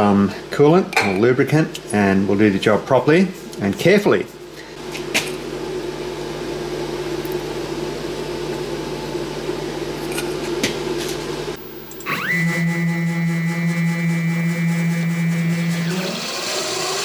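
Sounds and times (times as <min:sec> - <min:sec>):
steady machine hum: 0:01.5 - 0:17.0
spindle motor whine: 0:11.6 - 0:17.0.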